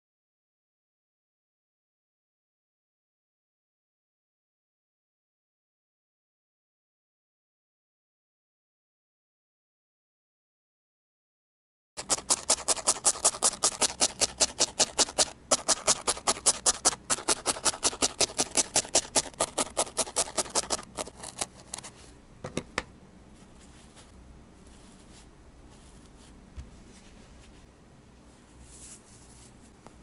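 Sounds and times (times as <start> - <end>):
felting needle jabbing into wool: 12.0 - 21.9.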